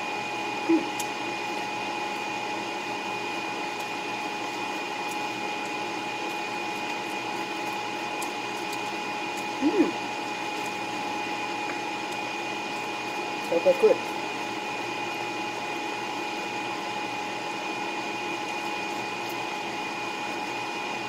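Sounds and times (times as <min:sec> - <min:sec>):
mechanical hum with high tone: 0:00.0 - 0:21.0
short voice sound: 0:00.6 - 0:00.9.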